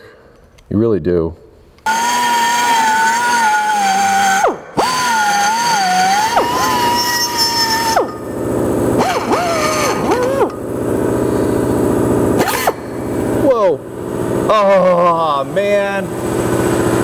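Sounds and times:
die grinder whining: 0:01.8 - 0:14.6
low machine drone: 0:01.8 - 0:17.0.

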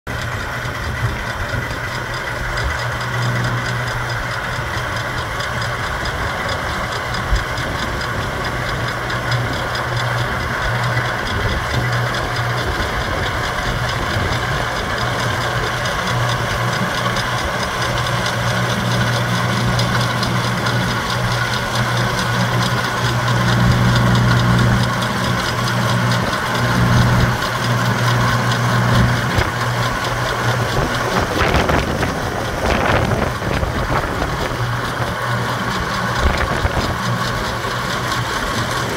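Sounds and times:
tractor engine running: 0:00.1 - 0:38.9.

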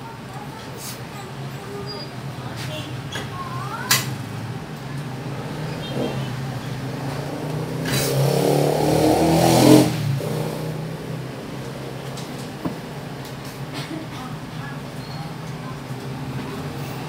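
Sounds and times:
motor vehicle passing by: 0:04.0 - 0:13.6.

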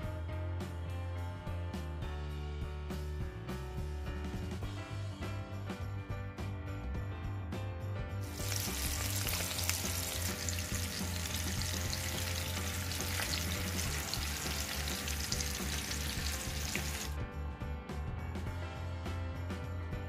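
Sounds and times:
chicken sizzling in oil: 0:08.2 - 0:17.2.

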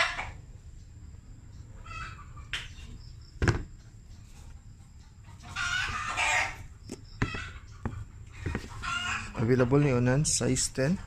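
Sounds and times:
chicken calling: 0:00.0 - 0:00.6, 0:01.6 - 0:03.3, 0:04.2 - 0:10.0.

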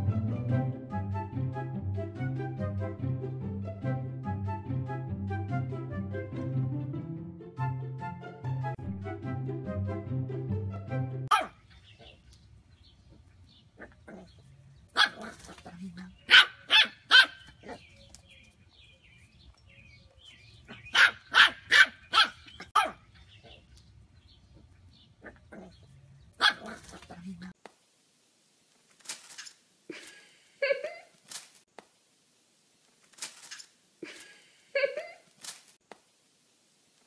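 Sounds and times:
small dog barking: 0:11.3 - 0:11.6, 0:13.8 - 0:17.8, 0:20.7 - 0:23.0, 0:25.2 - 0:25.8, 0:26.4 - 0:27.2.

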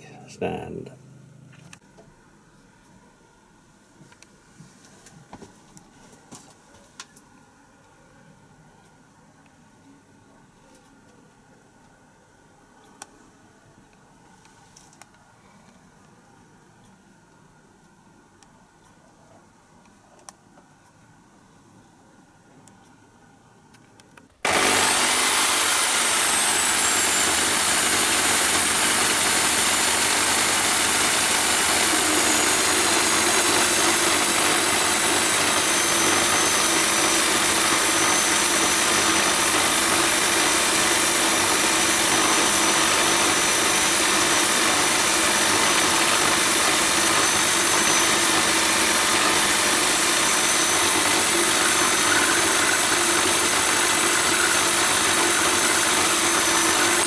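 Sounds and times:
drive motor whine: 0:24.4 - 0:57.0
end mill cutting metal: 0:24.4 - 0:57.0.

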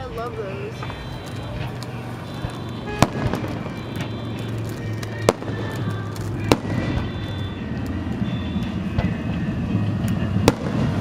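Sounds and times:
fireworks crackling: 0:00.0 - 0:11.0
firework shell bang: 0:03.0 - 0:03.8.

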